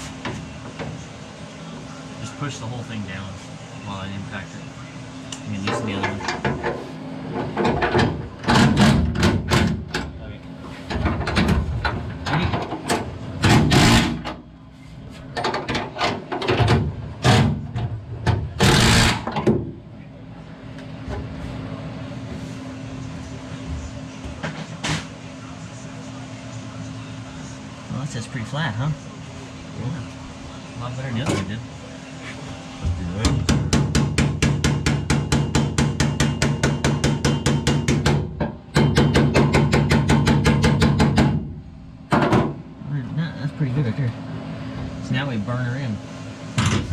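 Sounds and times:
impact wrench bursts: 13.5 - 14.3, 18.6 - 19.3.

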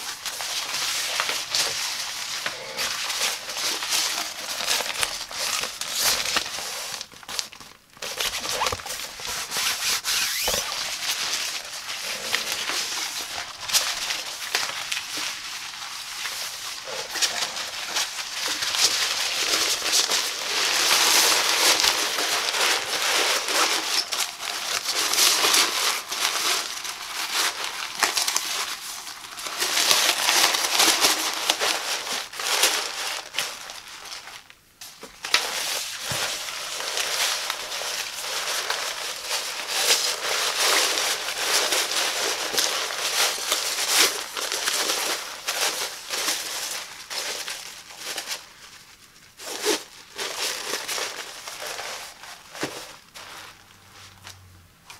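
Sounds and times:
nylon fabric rustling: 0.0 - 34.4.

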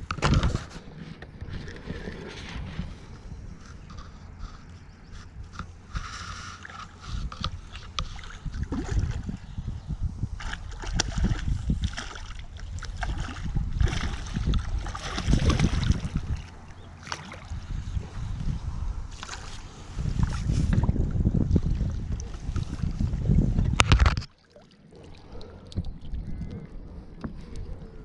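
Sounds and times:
wind rumbling on microphone: 0.0 - 24.3, 25.2 - 28.0.

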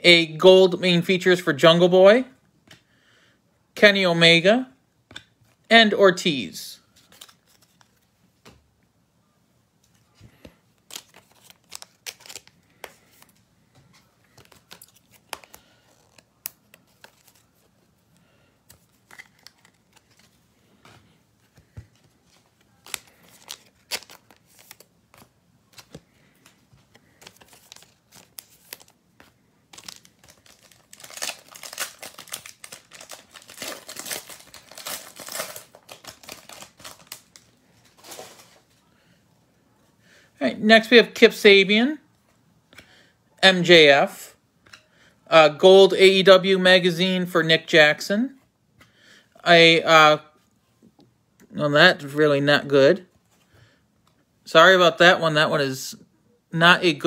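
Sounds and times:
card pack wrapper crinkling and tearing: 7.0 - 8.0, 10.8 - 13.4, 14.3 - 17.7, 18.7 - 20.4, 22.0 - 38.7
trading cards clicking and rustling: 7.0 - 8.0, 10.3 - 17.7, 18.6 - 38.6.

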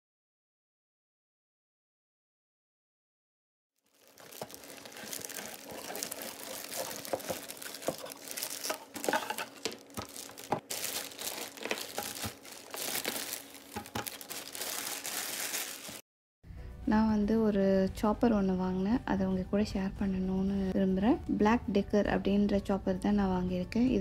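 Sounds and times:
plastic bag crinkling: 3.8 - 16.0.

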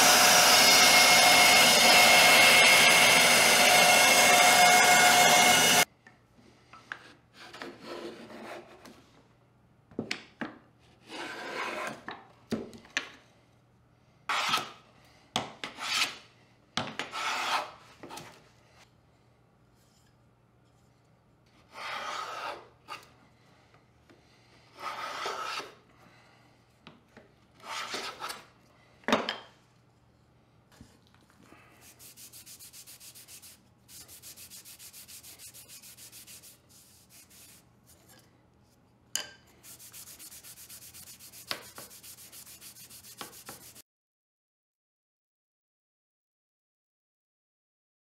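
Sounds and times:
bandsaw cutting wood: 0.0 - 5.8
hand plane scraping wood: 11.0 - 12.0, 14.3 - 14.6, 17.1 - 18.2, 21.7 - 23.0, 24.7 - 25.8, 27.6 - 28.4, 31.8 - 37.6, 39.6 - 43.8.

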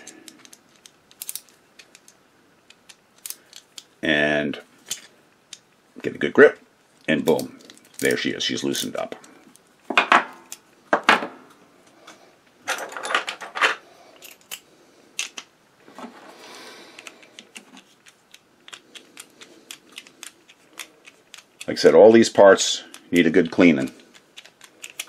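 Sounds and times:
parts set down on wooden bench: 9.9 - 11.4.

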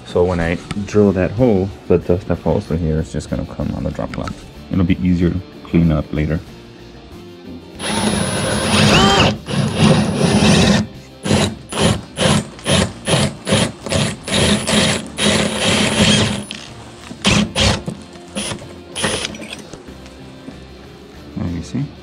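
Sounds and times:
drill boring through drywall: 7.8 - 19.6.

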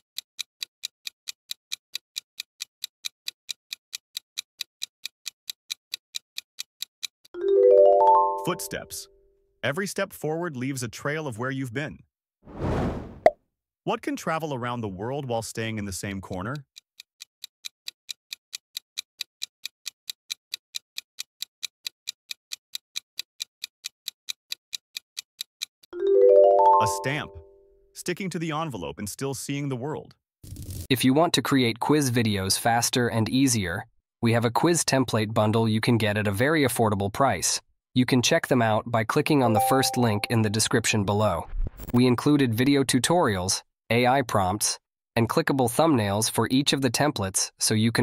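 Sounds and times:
clock ticking: 0.0 - 7.5, 15.6 - 27.2, 39.2 - 40.8.

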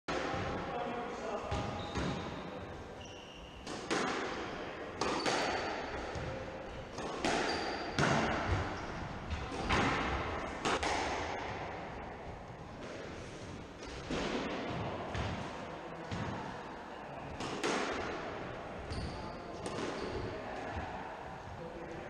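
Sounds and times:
shoes squeaking: 1.7 - 2.4, 3.0 - 3.7, 6.8 - 9.0, 18.9 - 20.2
squash ball hits: 3.6 - 11.8, 17.4 - 18.3.

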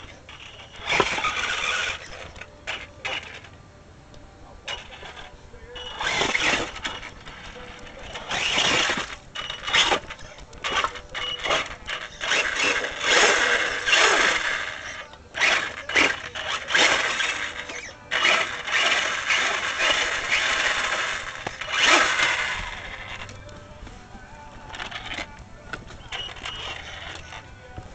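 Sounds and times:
electric motor whirring: 0.0 - 3.6, 4.8 - 27.9.

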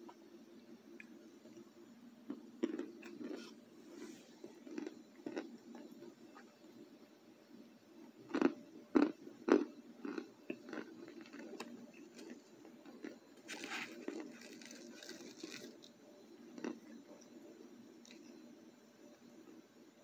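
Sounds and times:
chewing crunches: 2.3 - 3.6, 4.4 - 6.0, 8.2 - 17.3
crunching bites: 8.3 - 15.9.

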